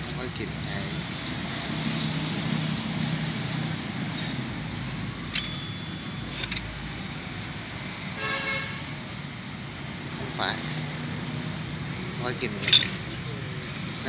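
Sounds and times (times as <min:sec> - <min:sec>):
road traffic: 0:00.0 - 0:14.0
metallic clinks of hand tools: 0:04.2 - 0:07.0, 0:12.6 - 0:14.0.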